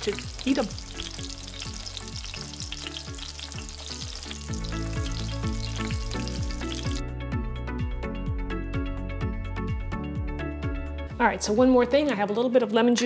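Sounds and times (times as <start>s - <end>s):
shrimp sizzling in hot oil: 0.0s - 7.0s
background music with low beat: 0.1s - 11.9s.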